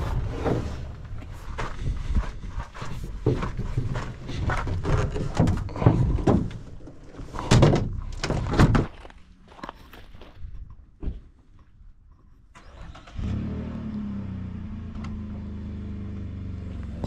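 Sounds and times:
irregular thuds and knocks: 0:00.0 - 0:09.1, 0:10.2 - 0:11.6.

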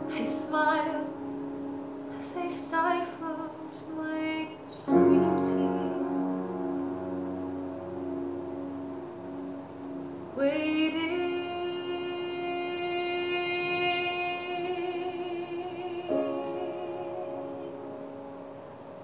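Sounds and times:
woman singing with vibrato: 0:00.0 - 0:06.7, 0:10.3 - 0:18.1
held accompaniment chord: 0:00.0 - 0:19.0.

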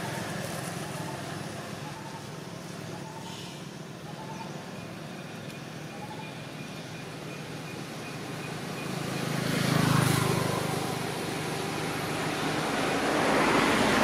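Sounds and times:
vehicle passing: 0:00.0 - 0:03.5, 0:07.2 - 0:14.0.

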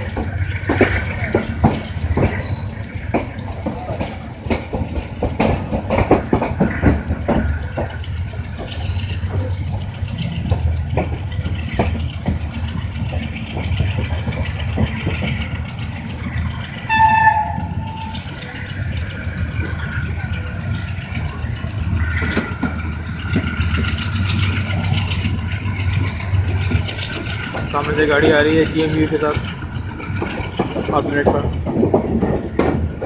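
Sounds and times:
train running gear rumble: 0:00.0 - 0:33.0
wheels clacking over rail joints: 0:00.0 - 0:33.0
train horn blast: 0:16.8 - 0:18.2.

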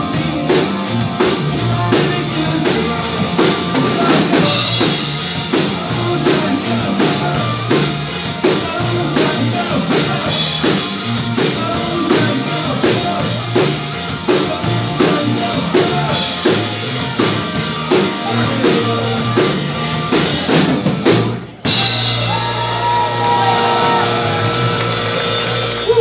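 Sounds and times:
drums beating: 0:00.0 - 0:26.0
rock band playing: 0:00.0 - 0:26.0.

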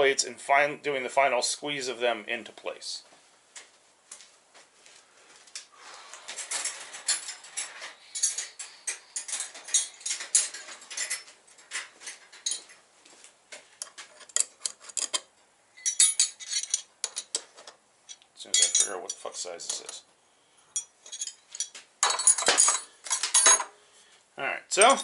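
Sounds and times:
metal hand tools clinking: 0:06.3 - 0:12.8, 0:13.8 - 0:20.0, 0:20.7 - 0:23.7.

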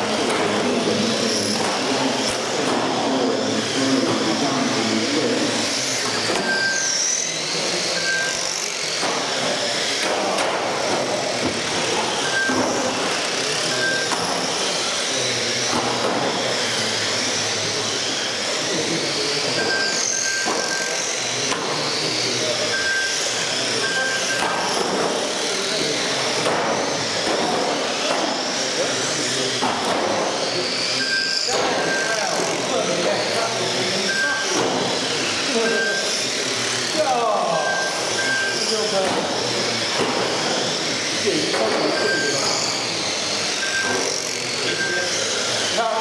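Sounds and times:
rc car motors whining: 0:00.0 - 0:46.0
short high beeps: 0:06.4 - 0:06.9, 0:08.0 - 0:08.4, 0:12.2 - 0:12.7, 0:22.7 - 0:24.6, 0:31.0 - 0:32.3, 0:34.0 - 0:34.6, 0:35.6 - 0:36.1, 0:37.5 - 0:38.7, 0:41.9 - 0:42.4, 0:43.6 - 0:44.1.

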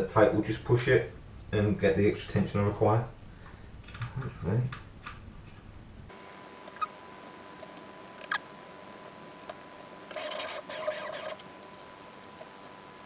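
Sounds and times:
scraping rasp: 0:10.1 - 0:11.5.

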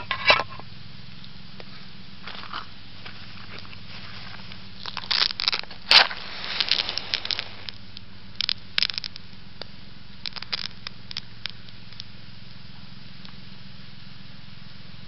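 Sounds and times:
fire crackling and popping: 0:01.0 - 0:13.5
matches struck and flaring: 0:04.8 - 0:07.8.

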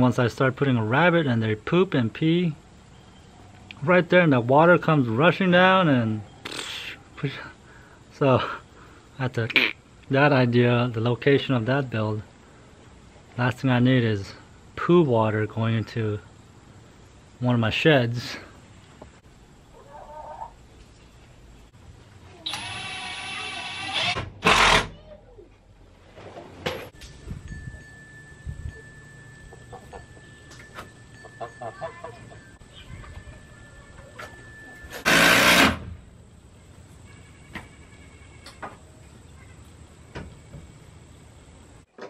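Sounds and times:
power drill motor whining: 0:22.5 - 0:24.8, 0:35.0 - 0:35.8.

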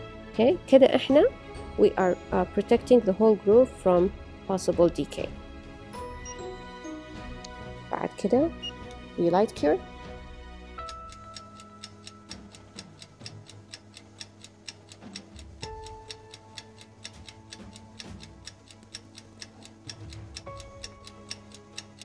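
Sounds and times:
ticking beat: 0:10.8 - 0:22.0.

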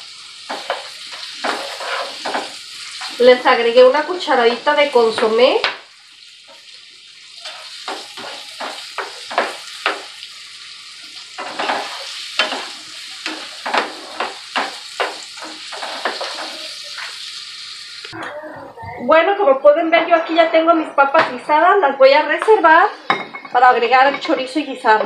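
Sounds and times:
potatoes sizzling in oil: 0:00.0 - 0:18.2
spatula scraping a pan: 0:00.5 - 0:03.2, 0:07.4 - 0:10.2, 0:11.3 - 0:17.3.

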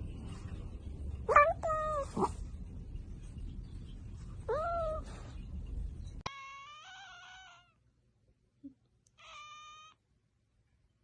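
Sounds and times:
low rumble: 0:00.0 - 0:06.2
cat meowing: 0:06.2 - 0:07.8, 0:09.2 - 0:10.0.

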